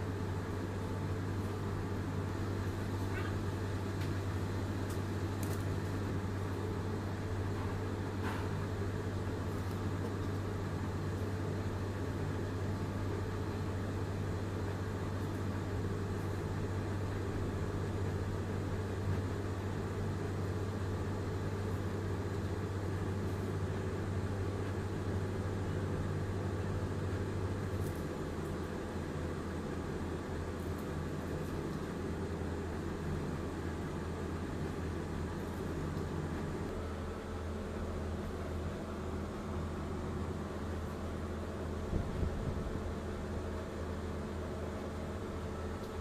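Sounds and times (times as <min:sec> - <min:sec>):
low mechanical hum: 0:00.0 - 0:46.0.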